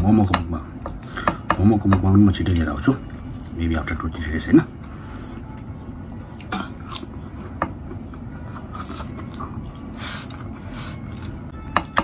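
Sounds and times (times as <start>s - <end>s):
man chewing food: 6.3s - 12.0s.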